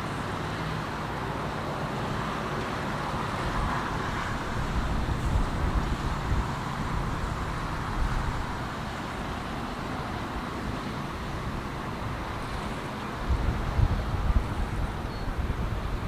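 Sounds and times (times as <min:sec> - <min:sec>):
wind buffeting microphone: 0:04.3 - 0:09.2, 0:11.2 - 0:16.0.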